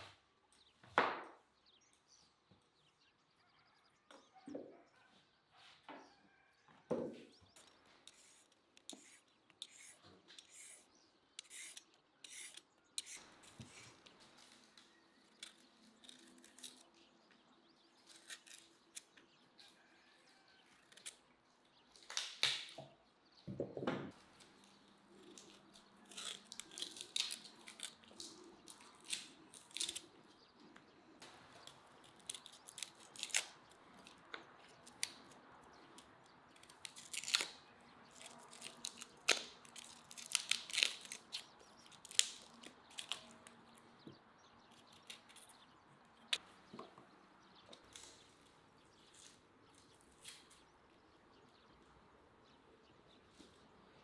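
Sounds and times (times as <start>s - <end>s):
knives scraping and clicking: 8.1s - 14.0s.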